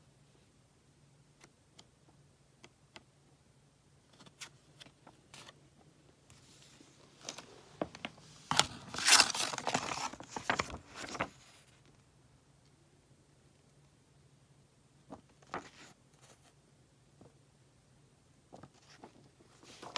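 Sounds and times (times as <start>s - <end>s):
cardboard packaging rustling: 7.2s - 11.6s, 18.8s - 19.9s.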